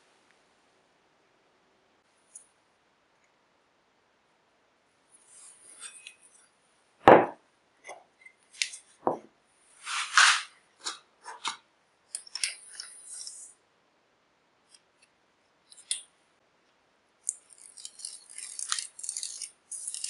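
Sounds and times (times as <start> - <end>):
dull thud on bench: 7.1 - 7.4
scraping slide: 9.8 - 10.5
measuring tape clicks and rustling: 10.2 - 13.6, 14.7 - 16.2, 17.2 - 20.0.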